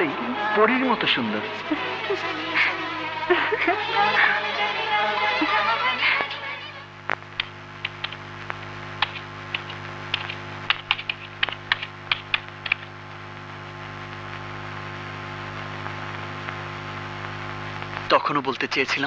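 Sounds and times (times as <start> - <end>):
steady low hum: 0.0 - 19.0
keyboard key clicks: 9.0 - 12.9.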